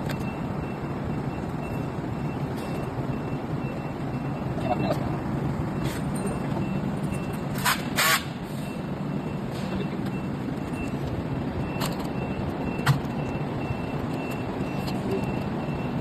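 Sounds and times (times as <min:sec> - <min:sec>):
rapidly pulsing high beep: 0:00.1 - 0:07.5
workshop background noise: 0:04.9 - 0:15.8.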